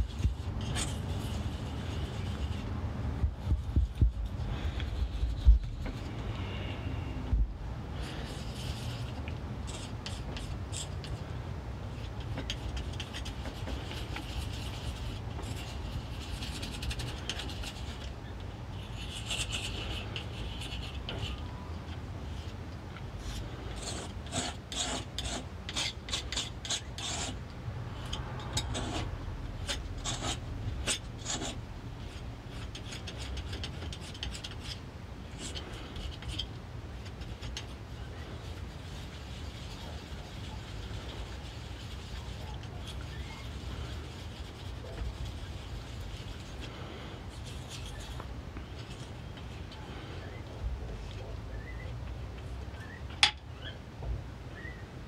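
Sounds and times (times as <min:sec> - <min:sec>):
palette knife scraping paste on stone: 0:23.2 - 0:27.4, 0:28.0 - 0:50.4.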